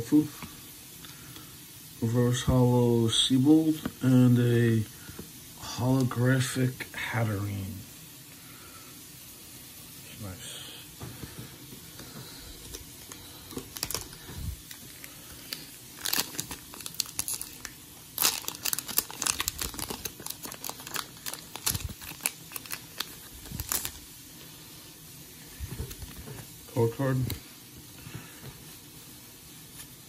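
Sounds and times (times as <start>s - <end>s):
foil wrapper crinkling and tearing: 12.6s - 24.2s.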